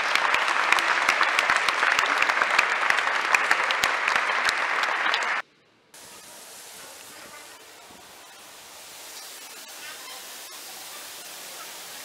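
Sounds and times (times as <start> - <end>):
audience applauding: 0.0 - 5.4
faint steady hiss: 4.5 - 12.0.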